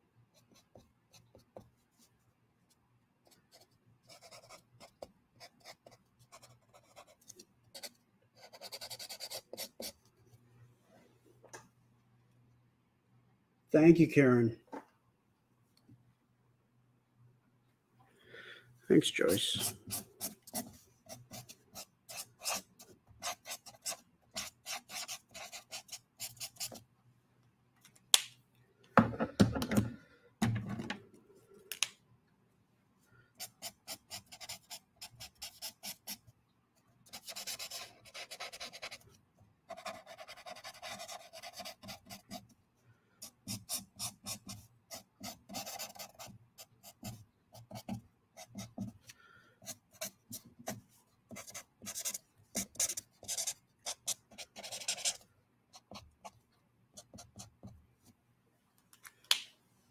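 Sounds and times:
marker scratching on paper: 3.3 - 10.0, 19.4 - 26.8, 33.4 - 36.2, 37.1 - 39.1, 39.7 - 42.6, 43.2 - 49.0, 49.6 - 55.2, 55.8 - 56.4.

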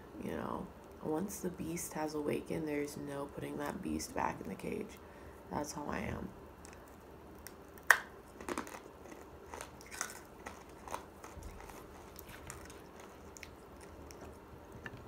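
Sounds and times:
person biting and chewing candy: 6.6 - 14.8.

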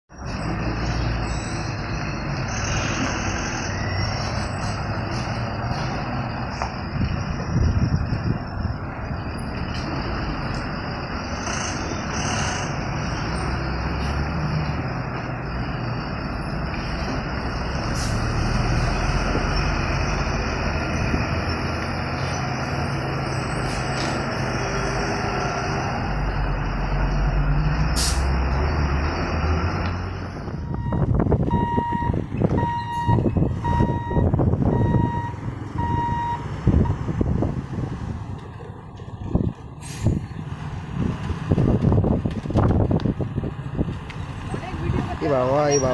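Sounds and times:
heavy truck engines rumbling: 0.1 - 45.9
high electronic beep: 3.6 - 4.6, 30.7 - 36.4.

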